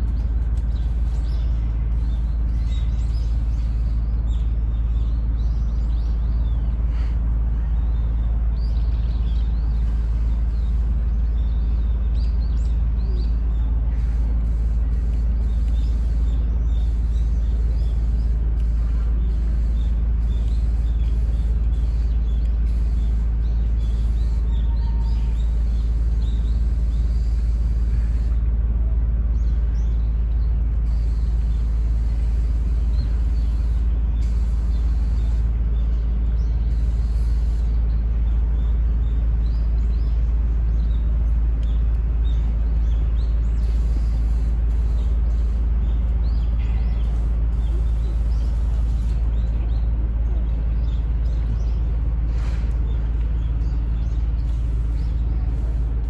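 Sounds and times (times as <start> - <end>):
small birds chirping: 0.0 - 28.6, 29.2 - 56.0
steady low rumble: 0.0 - 56.0.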